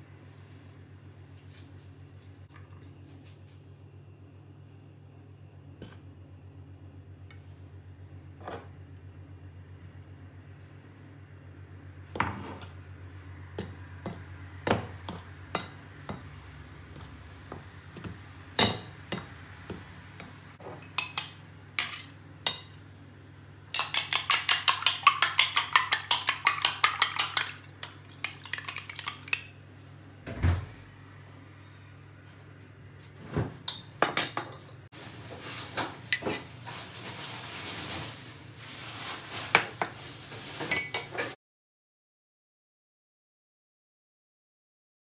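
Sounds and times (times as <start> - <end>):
metal spoon clinking in bowl: 20.8 - 22.8, 23.8 - 29.4.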